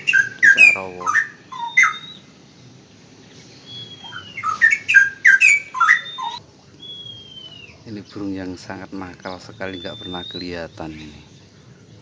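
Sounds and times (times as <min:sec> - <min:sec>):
falling bird whistle: 0:00.0 - 0:02.3, 0:03.6 - 0:07.8, 0:09.4 - 0:10.7
bird whistled song: 0:00.0 - 0:02.4, 0:03.4 - 0:12.0.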